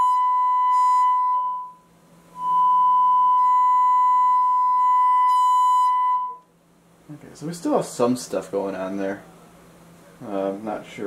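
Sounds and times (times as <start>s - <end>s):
sine-wave test tone with distortion buzz: 0.0s - 6.8s.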